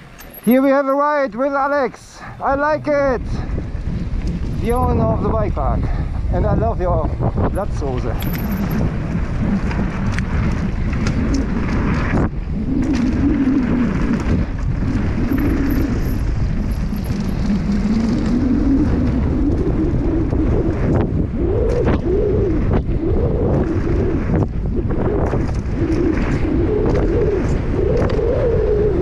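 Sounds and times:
wind rumble on microphone: 0.0 - 29.0
faint hum from moving bike: 8.1 - 28.7.

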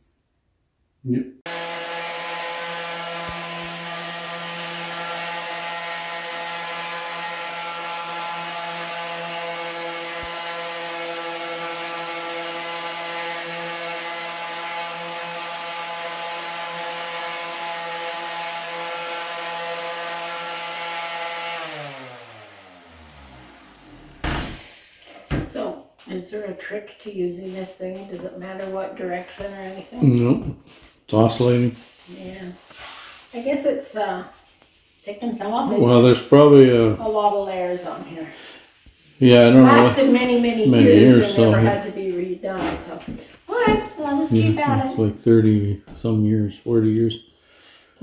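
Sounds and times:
electric sander running: 1.5 - 25.0, 35.7 - 37.2, 39.2 - 41.9, 43.6 - 45.0.

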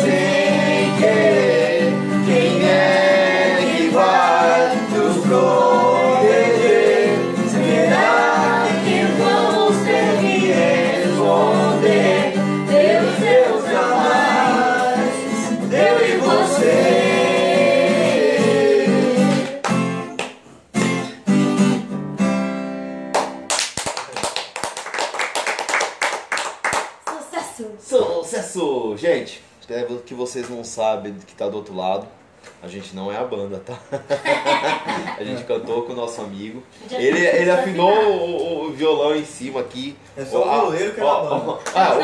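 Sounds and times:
group singing: 0.0 - 20.1
strummed acoustic guitar: 0.0 - 23.1
people clapping: 14.7 - 15.0, 19.3 - 21.0, 23.1 - 27.3, 41.5 - 42.0.

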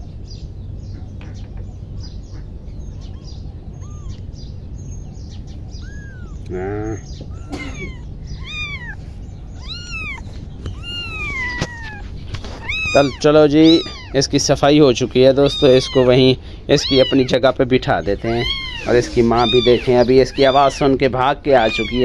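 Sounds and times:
kitten mewing: 3.1 - 4.4, 5.7 - 17.6, 18.2 - 22.0.

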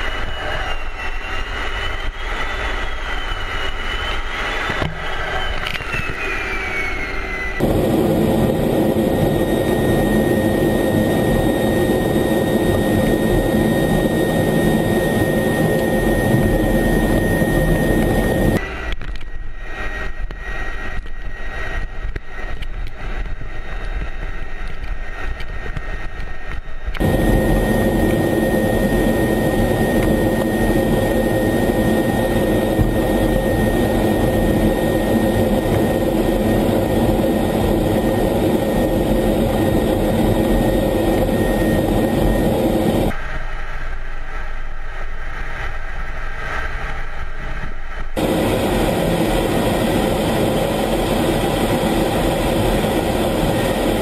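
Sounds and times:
wavering high tone gliding down: 0.0 - 7.7
jet engine rush with high whine: 0.0 - 54.0.

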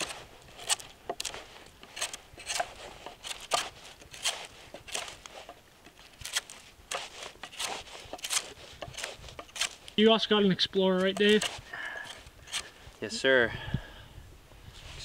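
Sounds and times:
knife scraping bark off wood: 0.0 - 10.0, 10.9 - 12.8.

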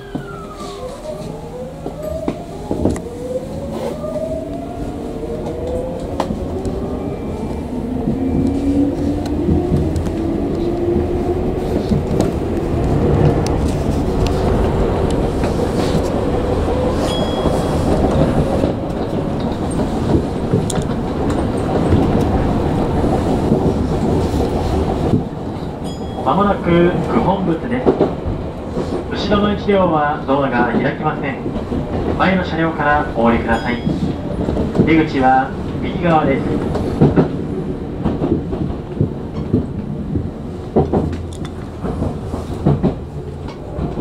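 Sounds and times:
train traction motor whine: 0.0 - 10.7
rumble of wheels on rail: 0.0 - 44.0
rail-joint clicks: 11.7 - 29.4, 30.5 - 44.0.

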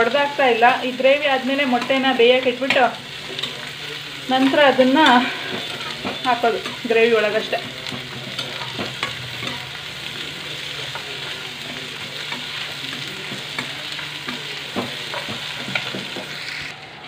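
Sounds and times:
onions frying in hot oil: 0.0 - 17.0
spatula scraping a pan: 4.4 - 9.6.

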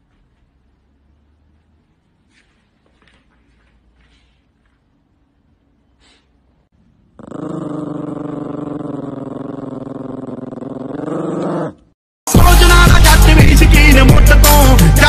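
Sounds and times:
dog growling: 7.1 - 11.9.

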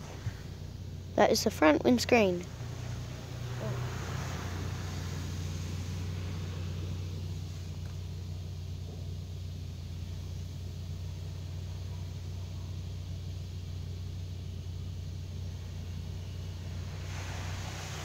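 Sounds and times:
car engine running: 0.0 - 18.0
car wash machinery hum: 0.0 - 18.0
faint hiss of spray: 2.1 - 8.6, 13.8 - 18.0.

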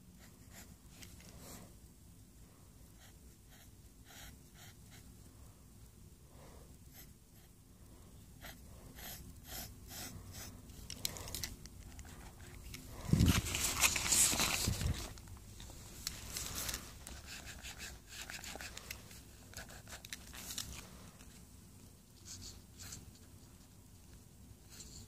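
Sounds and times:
pencil scratching on paper: 3.0 - 5.1, 8.4 - 10.5, 17.1 - 18.8
paper rustling: 11.1 - 21.4.

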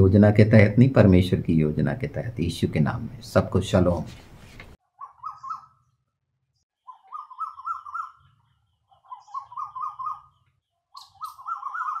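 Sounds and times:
warbling bird-like call: 5.0 - 5.9, 6.8 - 10.4, 11.0 - 12.0.

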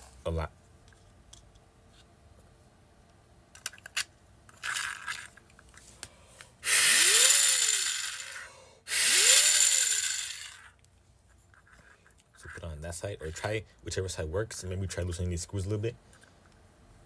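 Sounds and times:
turbine whooshing whir: 6.6 - 10.6.

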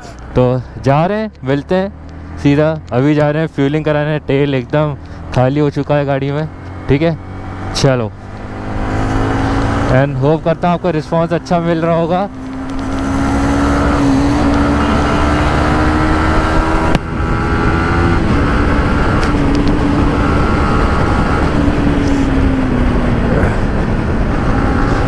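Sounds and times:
motorcycle engine revving: 1.4 - 25.0
heavy wind rush: 7.2 - 25.0.

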